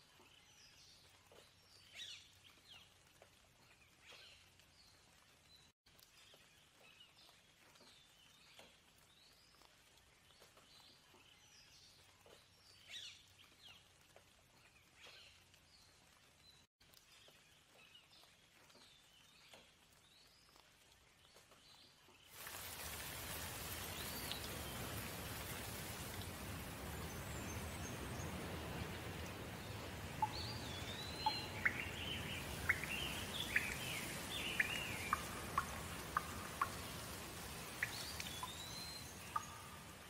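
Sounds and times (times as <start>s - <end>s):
steady rain: 0.0s - 40.0s
birds chirping: 23.0s - 40.0s.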